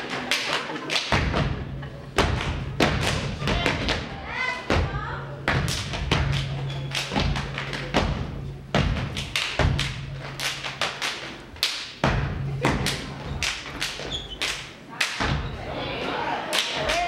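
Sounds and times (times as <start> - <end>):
hand claps: 0.0 - 1.5, 5.5 - 8.1, 8.8 - 15.4, 16.5 - 17.0.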